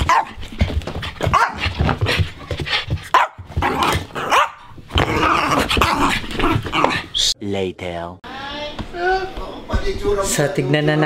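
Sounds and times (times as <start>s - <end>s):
small dog barking: 0.0s - 0.4s, 1.3s - 1.6s, 3.1s - 4.7s.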